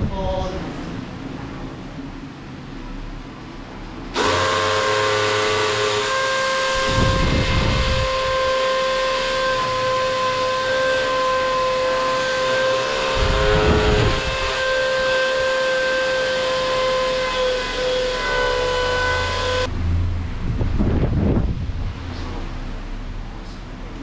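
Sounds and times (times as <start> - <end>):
drill rumbling under load: 4.1 - 19.7
power drill drilling into wall: 4.2 - 19.7.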